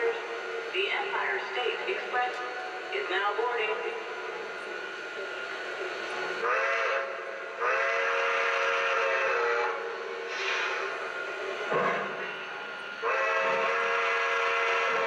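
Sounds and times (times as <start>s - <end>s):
model train running sounds: 0.0s - 15.0s.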